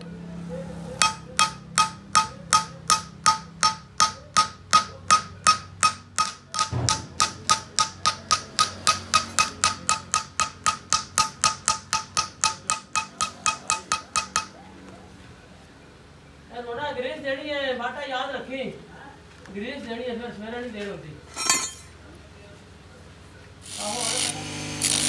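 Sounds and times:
hammer striking metal sleeve: 0:01.0 - 0:14.6, 0:21.4 - 0:21.9.

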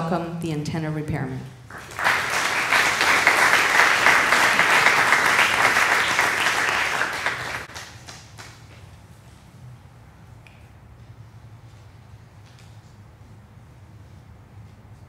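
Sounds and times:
audience applauding: 0:01.7 - 0:08.6.

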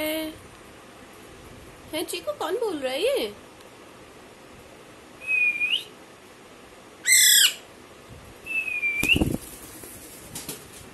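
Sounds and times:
parakeet rising whistle: 0:05.2 - 0:05.9, 0:07.0 - 0:07.7, 0:08.5 - 0:09.4
parakeet harsh screech: 0:07.0 - 0:07.7.

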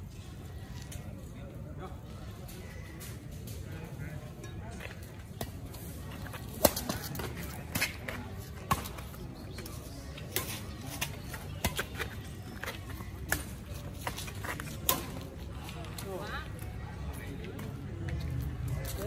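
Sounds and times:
rackets striking shuttlecock: 0:05.4 - 0:15.3.

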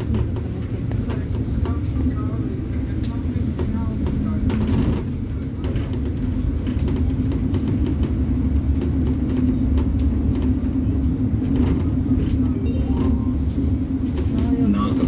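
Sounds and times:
bus engine and tyres rumbling: 0:00.0 - 0:15.0.

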